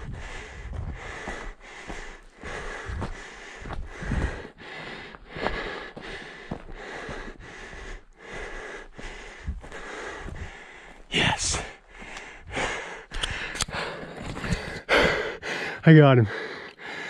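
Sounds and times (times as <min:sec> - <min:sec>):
footsteps on gravel: 0:00.0 - 0:04.5, 0:05.2 - 0:12.2
person breathing hard: 0:00.0 - 0:17.0.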